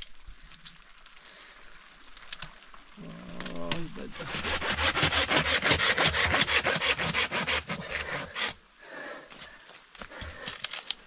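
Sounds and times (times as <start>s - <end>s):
hand saw cutting branch: 4.2s - 8.6s.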